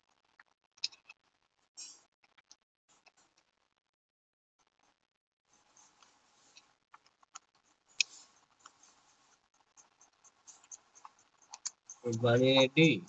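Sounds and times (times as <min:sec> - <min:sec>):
pen scratching on paper: 0:05.5 - 0:12.9.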